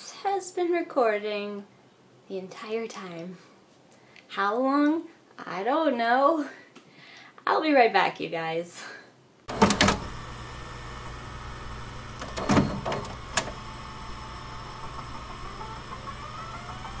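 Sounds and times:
mechanical clicks and clunks: 9.5s - 16.3s.

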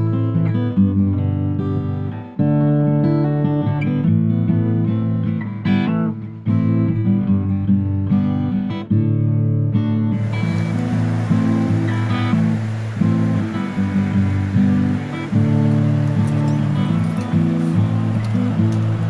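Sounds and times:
acoustic guitar strumming chords: 0.0s - 19.0s
steady hiss: 10.2s - 19.0s.

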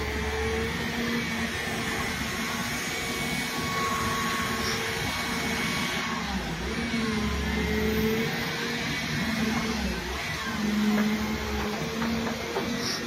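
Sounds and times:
excavator engine and fan: 0.0s - 13.0s.

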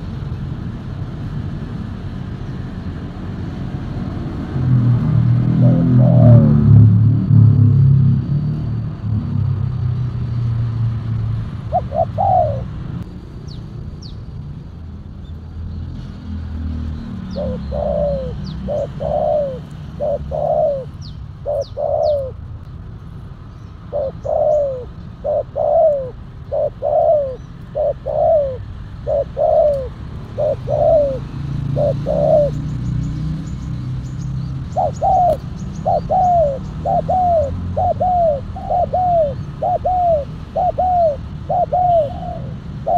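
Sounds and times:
doves cooing: 2.0s - 7.5s, 11.4s - 13.1s, 17.0s - 22.6s, 23.6s - 42.9s
small birds chirping: 11.5s - 42.9s.

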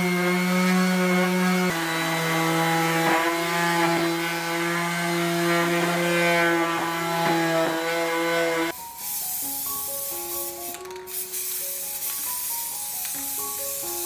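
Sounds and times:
sandpaper rubbing on wood: 0.0s - 10.6s.

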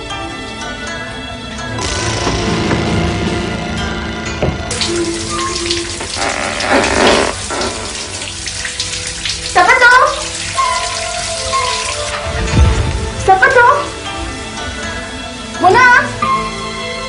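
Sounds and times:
music playing: 0.0s - 17.0s
shower water spraying: 4.6s - 14.1s.

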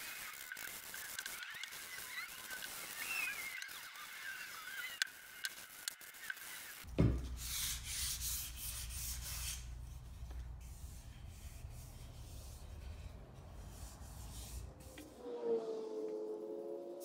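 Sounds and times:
sandpaper rubbing on wood: 6.4s - 15.2s
thump: 6.9s - 7.2s.

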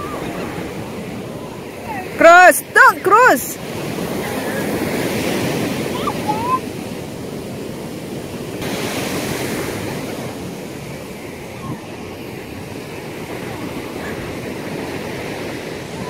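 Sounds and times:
surf rushing: 0.0s - 16.0s
wind buffeting microphone: 3.5s - 16.0s.

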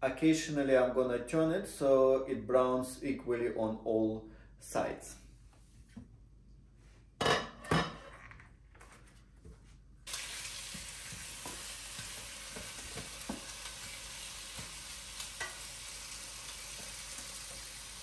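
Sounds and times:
liver sizzling in oil: 10.1s - 18.0s.

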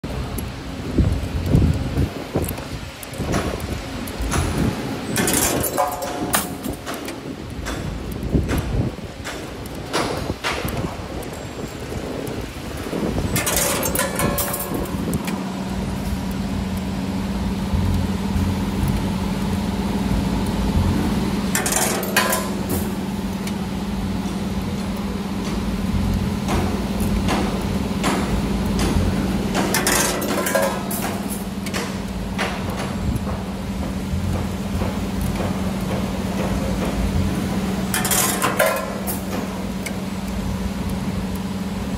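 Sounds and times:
machine drives humming: 0.0s - 41.9s
metallic clanks and clicks: 2.4s - 11.3s, 13.3s - 15.4s, 21.5s - 23.6s, 26.5s - 33.4s, 37.9s - 40.0s.

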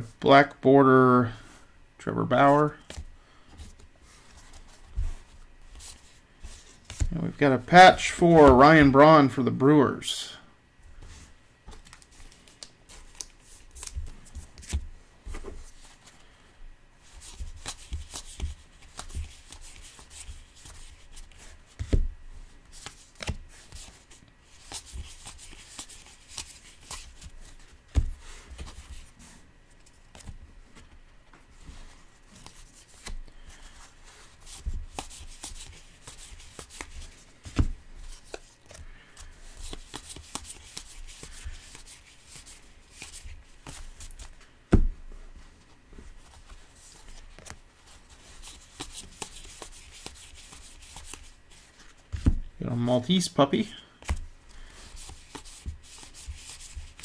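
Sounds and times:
cards flipped and stacked: 11.0s - 15.9s, 17.1s - 22.1s, 22.7s - 29.1s, 30.1s - 45.0s, 48.4s - 52.5s, 54.0s - 57.0s.

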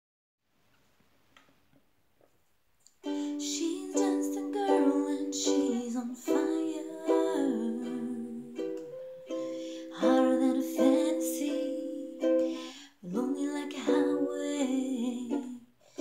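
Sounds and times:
ukulele strumming chords: 3.0s - 16.0s
woman singing: 3.1s - 8.9s, 9.5s - 15.7s.

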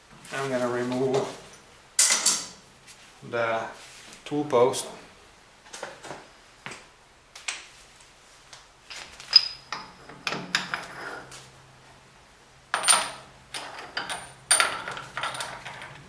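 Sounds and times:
metal parts clanking and scraping: 12.8s - 16.0s.

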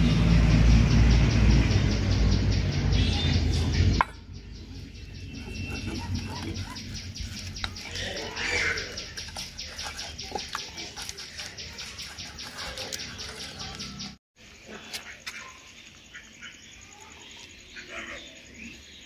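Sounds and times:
loud low rumble: 0.0s - 7.6s
birds chirping faintly: 0.1s - 19.0s
hands kneading wet paste: 5.4s - 14.1s.

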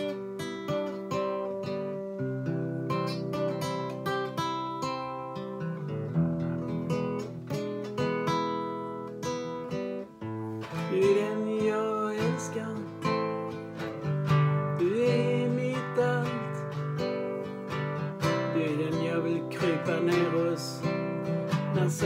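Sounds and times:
classical guitar playing: 0.0s - 22.0s
person singing wordless notes: 14.7s - 16.8s, 18.3s - 22.0s.

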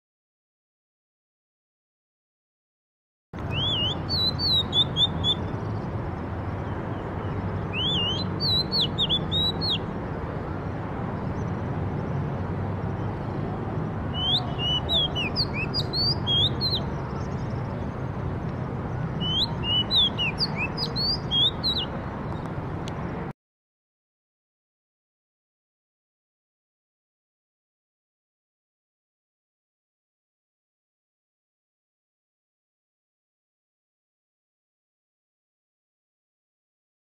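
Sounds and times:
songbird singing: 3.4s - 23.0s.

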